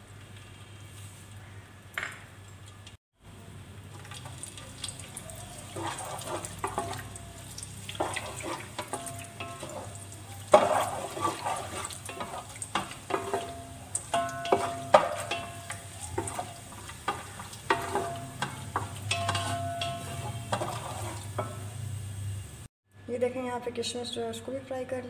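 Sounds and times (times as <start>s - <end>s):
raisins sizzling in oil: 3.4s - 22.7s
spoon scraping metal pot: 5.6s - 21.7s
low steady hum: 6.2s - 25.0s.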